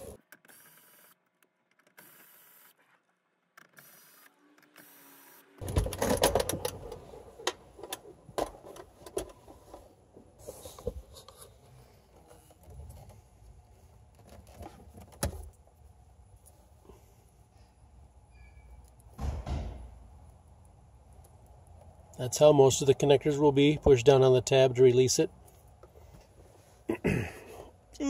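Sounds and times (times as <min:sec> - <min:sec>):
plastic clattering and knocking: 0:05.6 - 0:09.8.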